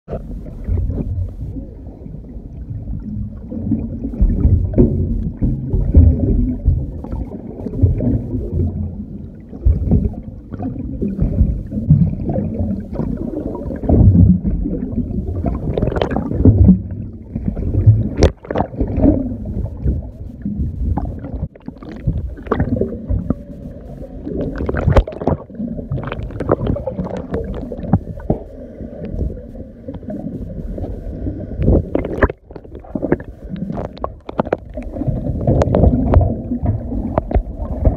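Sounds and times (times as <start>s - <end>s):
underwater rumble and swish: 0.1s - 37.9s
underwater clicks and pops: 18.0s - 23.4s, 24.4s - 28.4s, 31.6s - 37.9s.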